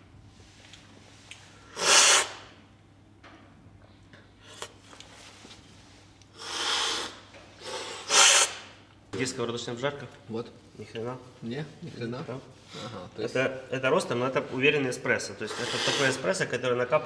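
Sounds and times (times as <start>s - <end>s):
loud coffee slurping: 1.8s - 2.4s, 6.4s - 8.6s, 15.5s - 16.2s.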